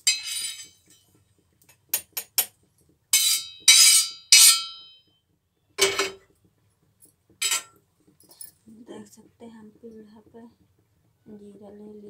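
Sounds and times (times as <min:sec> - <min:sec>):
metal spoon scraping steel griddle: 0:00.0 - 0:01.0, 0:03.2 - 0:04.8, 0:07.4 - 0:07.8.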